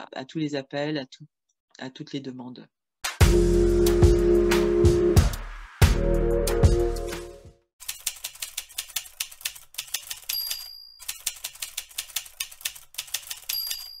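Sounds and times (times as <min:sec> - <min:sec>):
typewriter keys clacking: 0:07.8 - 0:14.0
typewriter carriage bell ding: 0:09.8 - 0:12.2, 0:13.0 - 0:14.0.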